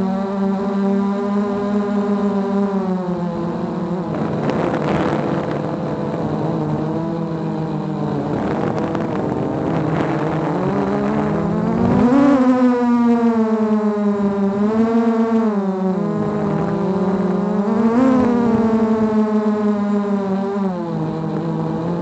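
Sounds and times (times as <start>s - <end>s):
drone propellers whining: 0.0s - 22.0s.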